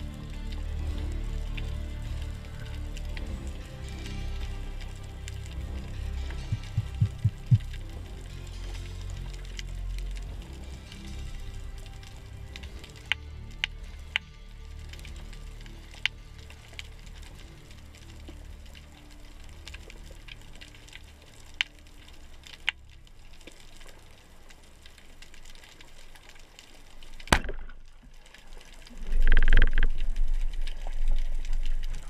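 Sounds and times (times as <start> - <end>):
underwater rumble: 0.6 - 10.8, 15.1 - 32.0
faint clicks: 18.2 - 32.0.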